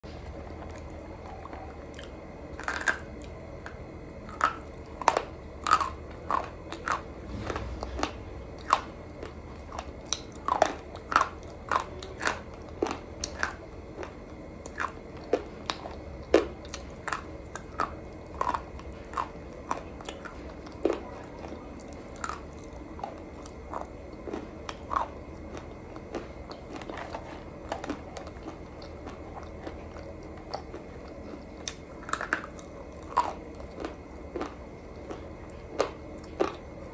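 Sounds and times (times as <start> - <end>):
crunching chews: 0.2 - 36.9.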